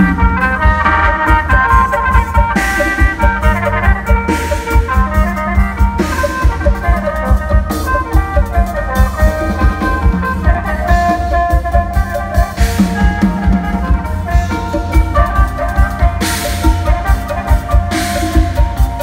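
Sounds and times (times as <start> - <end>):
drum kit beat: 0.0 - 19.0
mouth organ melody with drone: 0.0 - 19.0.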